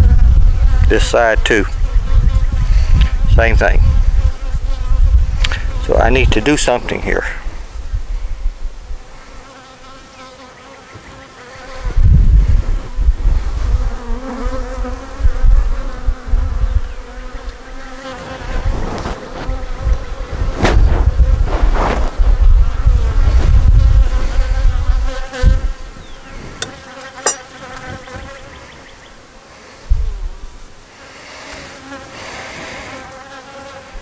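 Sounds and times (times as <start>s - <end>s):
honeybees buzzing: 15.9s - 20.6s, 22.8s - 28.9s.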